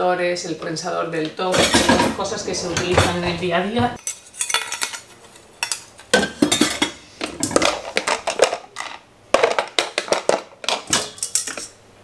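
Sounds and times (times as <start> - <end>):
steel bowls clinking: 4.0 - 8.9, 11.0 - 11.8
plastic containers knocking: 7.3 - 11.0.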